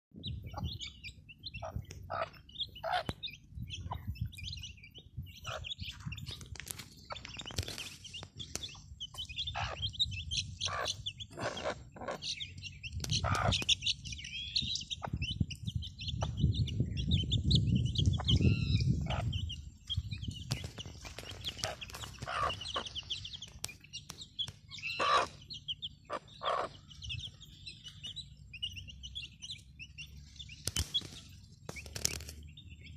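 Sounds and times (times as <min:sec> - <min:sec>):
hen clucking: 0:00.2 - 0:15.4, 0:18.0 - 0:30.1
chicks peeping: 0:00.2 - 0:32.9.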